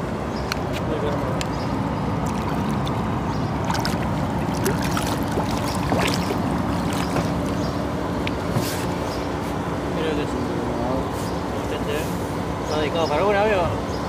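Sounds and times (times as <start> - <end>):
low mechanical drone: 0.0 - 14.0
fish splashing at water surface: 2.2 - 7.9.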